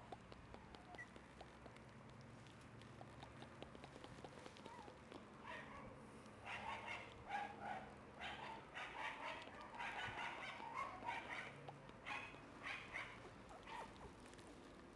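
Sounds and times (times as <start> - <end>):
puppy whining and yipping: 0.6 - 1.2, 3.1 - 5.9, 6.5 - 14.7.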